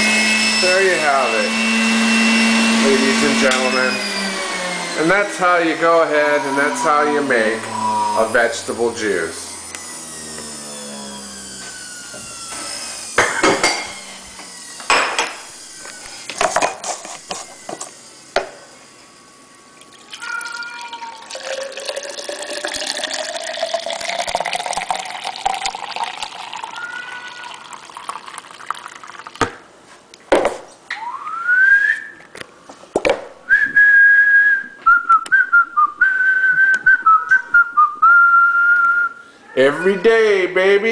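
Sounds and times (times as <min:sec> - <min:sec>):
short rising whistle: 0:06.0 - 0:13.2, 0:30.9 - 0:32.2, 0:33.5 - 0:39.3
juice pouring into a glass mug: 0:19.8 - 0:29.5.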